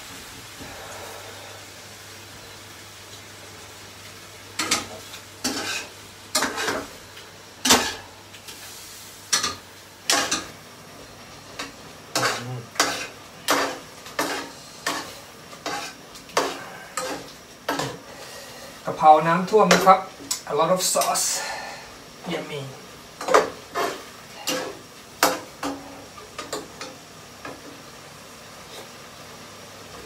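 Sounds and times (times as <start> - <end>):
faint sizzling: 0.0 - 30.0
spatula scraping a frying pan: 4.6 - 6.9, 11.5 - 18.8, 23.2 - 26.6.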